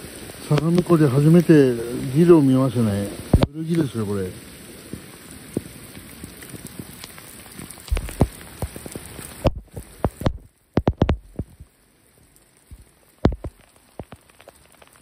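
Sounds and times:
heavy rain on stone steps: 0:00.0 - 0:15.0
sharp knocks of drops: 0:09.4 - 0:11.6.

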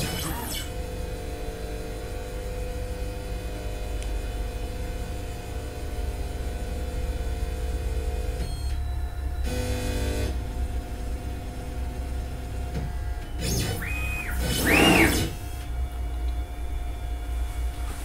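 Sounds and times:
steady low hum: 0:00.0 - 0:18.0
stepper motors whining: 0:00.0 - 0:18.0
short buzz: 0:13.2 - 0:15.7.

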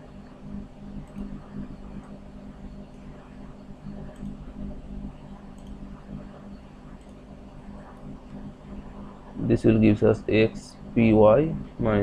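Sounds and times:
low steady hum: 0:00.0 - 0:12.0
faint clicks: 0:05.5 - 0:05.8.

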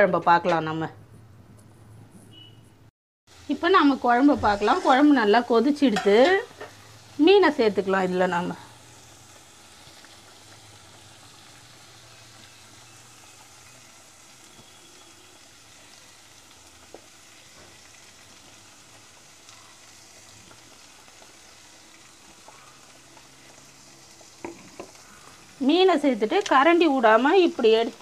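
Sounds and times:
curry bubbling in a pot: 0:08.8 - 0:25.6.

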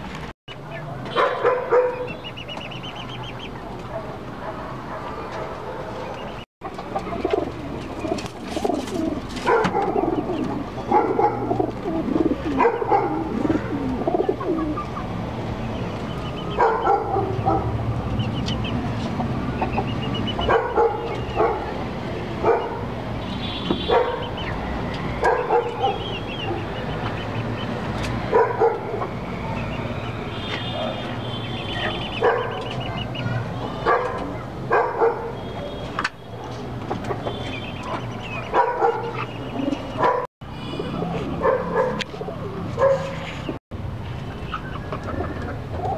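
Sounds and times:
hens clucking: 0:06.1 - 0:15.2, 0:44.5 - 0:45.9
pigeons cooing: 0:06.8 - 0:15.1, 0:37.0 - 0:43.5, 0:44.6 - 0:45.9.

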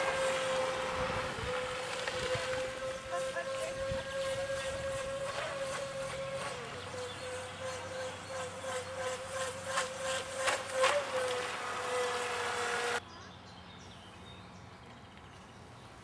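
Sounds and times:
boat hull splashing water: 0:00.0 - 0:07.0
electric motor whining: 0:00.0 - 0:13.0.

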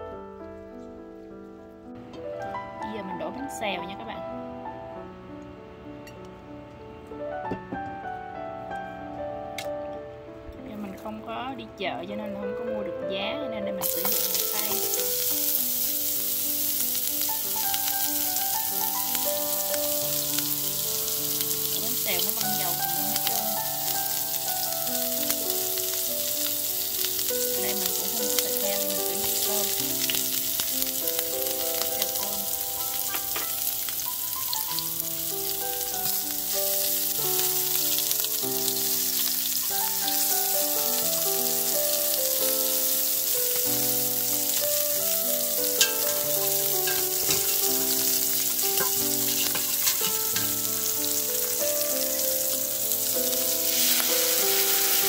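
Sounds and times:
quiet background music: 0:00.0 - 0:55.0
food sizzling in a frying pan: 0:13.2 - 0:55.0.

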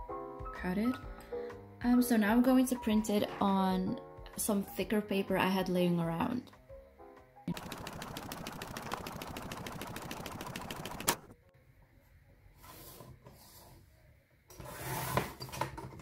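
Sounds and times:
printer ticking: 0:07.5 - 0:11.3.

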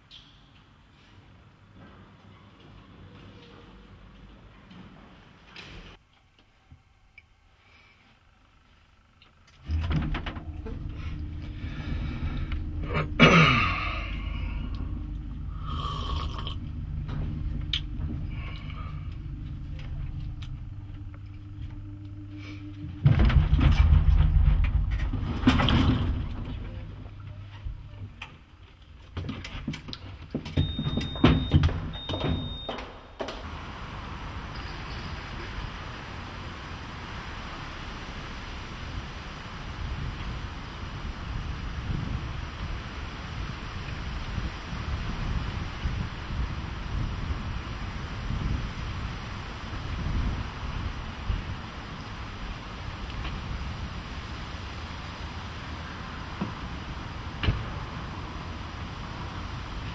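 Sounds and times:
lift car rumble: 0:09.6 - 0:28.7, 0:29.8 - 0:59.9
lift doors knocking and clunking: 0:09.7 - 0:13.2, 0:16.6 - 0:22.0, 0:22.8 - 0:27.9, 0:29.2 - 0:33.4
even hiss: 0:10.6 - 0:19.7
person burping: 0:12.8 - 0:14.7, 0:15.5 - 0:16.7.

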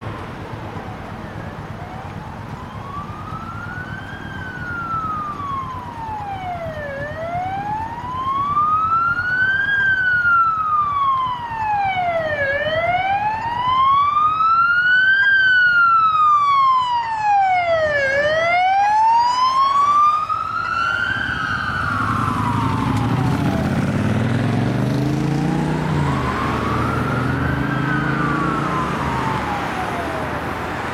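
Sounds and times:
police siren wailing: 0:00.4 - 0:30.9
car engine revving: 0:21.8 - 0:30.8.

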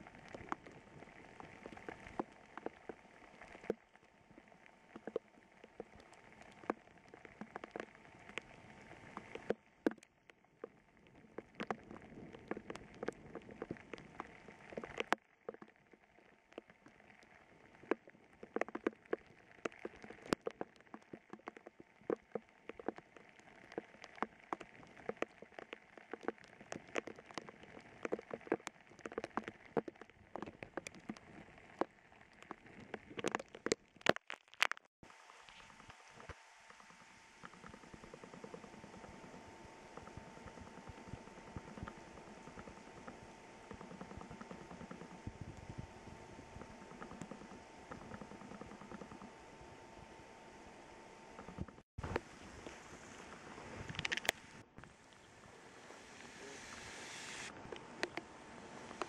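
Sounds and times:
raindrops ticking close by: 0:00.0 - 0:45.9
heavy rain hissing: 0:54.5 - 0:59.0.

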